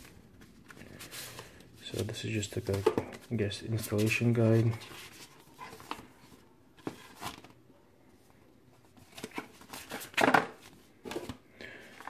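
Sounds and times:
paper rustling: 0.0 - 7.5.

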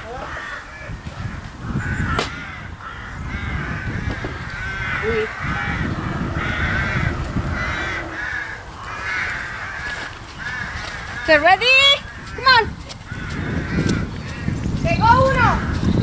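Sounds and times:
crows cawing: 1.6 - 14.5
steady low rumble: 4.4 - 8.9.

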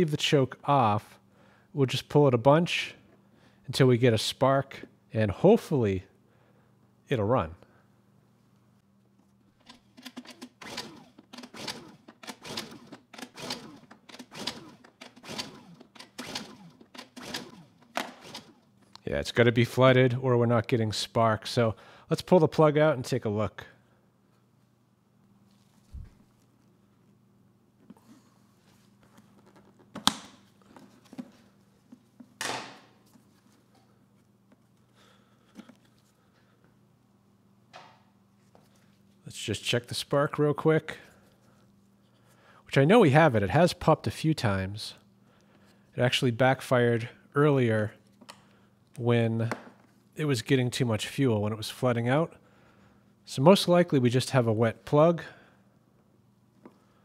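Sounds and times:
generator recoil starter pulls: 9.6 - 19.0
engine turning over: 9.8 - 18.7.

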